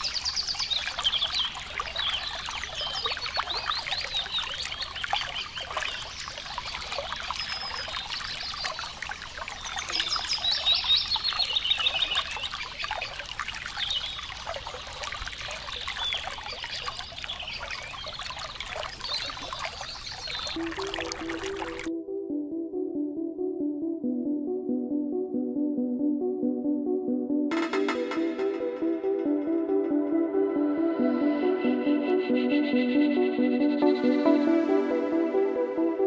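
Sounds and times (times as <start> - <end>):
songbirds chirping: 0.0 - 21.9
water trickling and splashing: 0.0 - 21.9
music with steady notes: 20.6 - 36.0.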